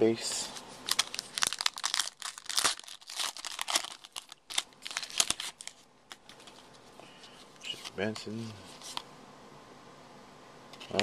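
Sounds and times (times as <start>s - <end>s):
wrapper tearing and crinkling: 0.8s - 5.8s.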